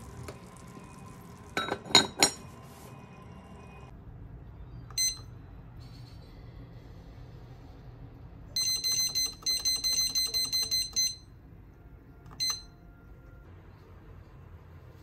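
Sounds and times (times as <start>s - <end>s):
cookware clinking: 1.6s - 2.5s.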